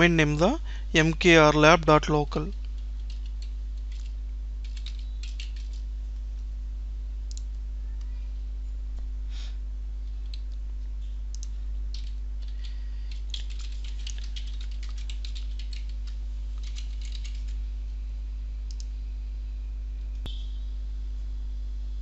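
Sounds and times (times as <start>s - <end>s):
steady low hum: 0.0s - 22.0s
computer keyboard typing: 2.4s - 5.9s, 11.3s - 17.6s.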